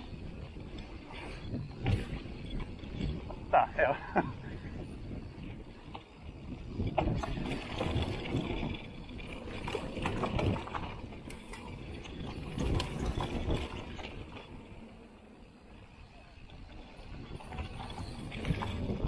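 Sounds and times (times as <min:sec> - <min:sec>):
bike clicking and rattling: 0:00.0 - 0:19.0
bike tyres rumbling over dirt: 0:00.0 - 0:19.0.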